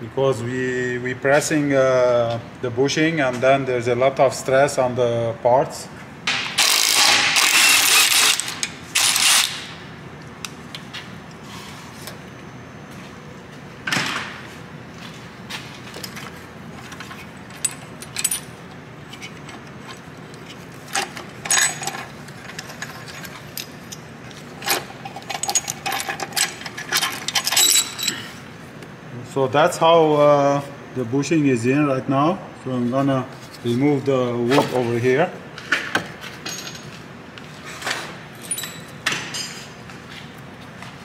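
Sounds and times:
impact wrench hammering: 6.3s - 9.8s
metal clinks: 24.6s - 28.3s, 38.4s - 39.5s.

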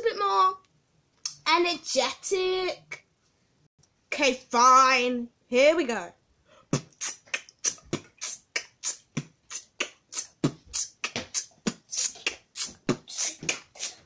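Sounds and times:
beatboxing: 6.7s - 14.0s.

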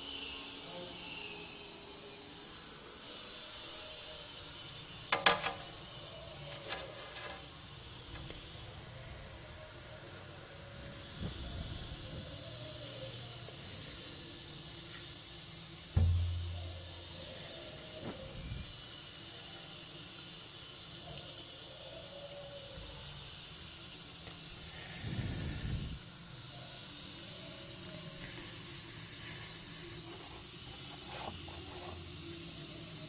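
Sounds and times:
steady background hiss: 0.0s - 33.0s
low rustling bump: 16.0s - 17.2s.

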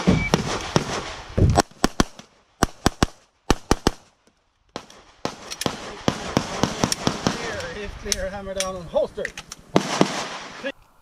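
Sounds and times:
pistol shots: 0.0s - 4.1s, 4.8s - 7.6s, 9.8s - 10.6s.

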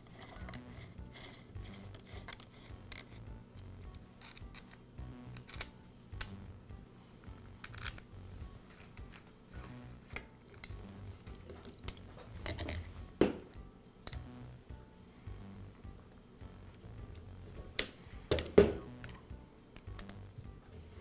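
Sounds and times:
hex key clicking and scraping: 0.0s - 6.4s, 7.2s - 8.1s.

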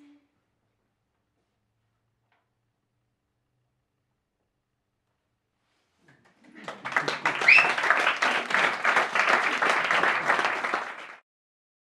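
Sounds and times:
audience applauding: 6.2s - 11.2s.

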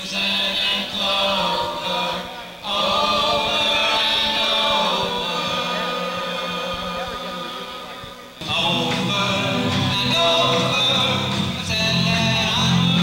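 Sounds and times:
men singing: 0.0s - 13.0s
live rock band: 8.4s - 13.0s.

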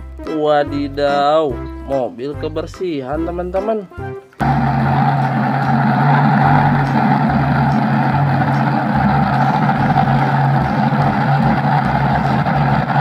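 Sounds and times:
vehicle engine running: 4.4s - 13.0s.

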